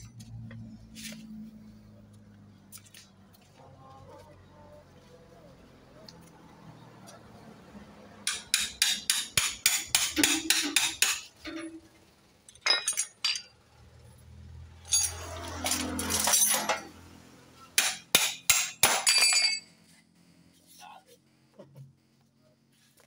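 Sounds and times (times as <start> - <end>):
hand tools striking metal: 8.2 - 11.8, 14.8 - 17.0, 17.7 - 19.7
scraping clatter of metal: 14.8 - 17.0.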